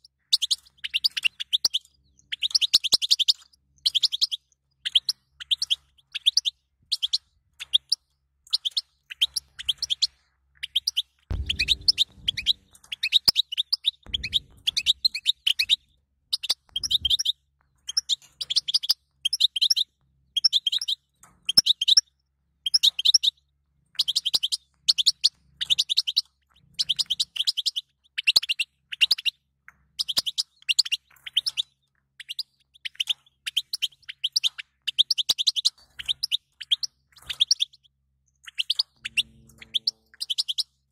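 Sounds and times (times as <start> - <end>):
goldfinch twittering chirps: 0.2 - 17.3, 24.0 - 29.3, 30.0 - 40.9
low rumbles: 11.3 - 12.8, 14.1 - 15.7.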